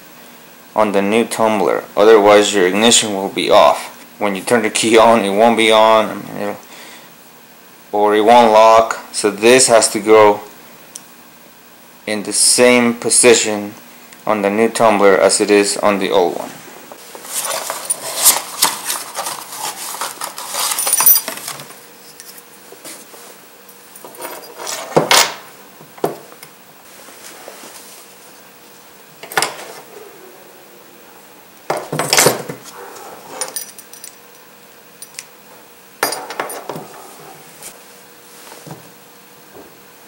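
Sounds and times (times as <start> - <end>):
cardboard rustling: 17.0 - 21.8
metal keys clinking: 20.5 - 22.4, 32.0 - 34.4, 35.0 - 35.3.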